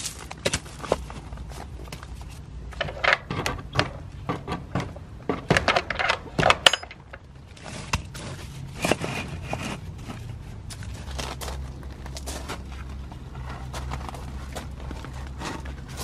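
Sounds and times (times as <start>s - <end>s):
gravel clattering and scraping: 0.0s - 16.0s.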